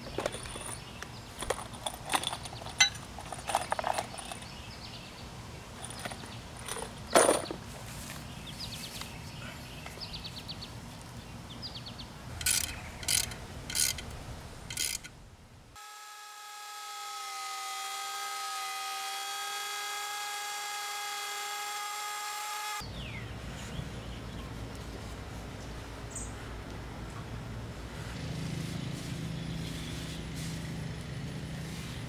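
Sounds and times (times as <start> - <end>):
electric wood router whining: 15.8 - 22.8.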